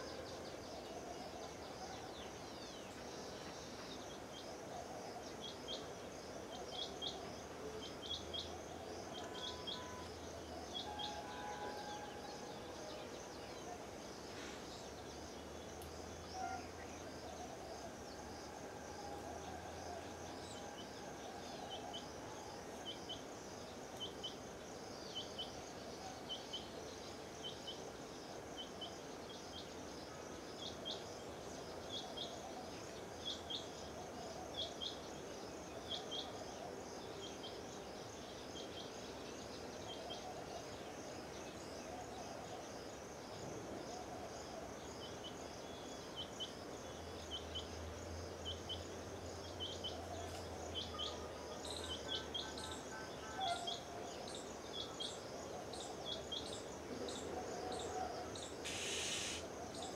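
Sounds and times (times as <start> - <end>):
insect drone: 0.0 - 59.9
bird chirping: 48.4 - 59.9.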